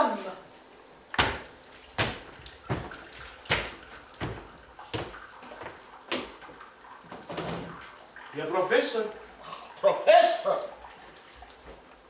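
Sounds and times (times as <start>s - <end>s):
footsteps on wooden floor: 1.2s - 6.4s.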